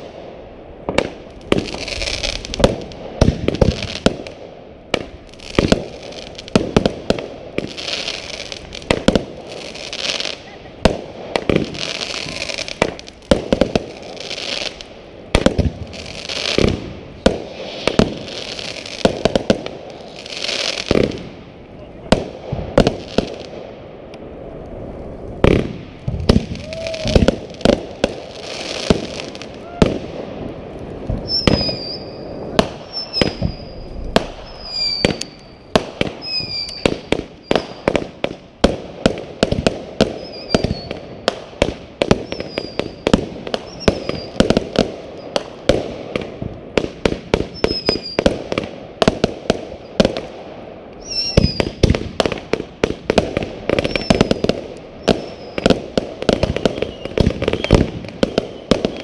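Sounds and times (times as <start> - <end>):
fireworks bangs and pops: 0.0 - 59.0
short falling whistles: 31.2 - 32.3, 32.9 - 35.5, 36.2 - 36.9, 43.7 - 44.4.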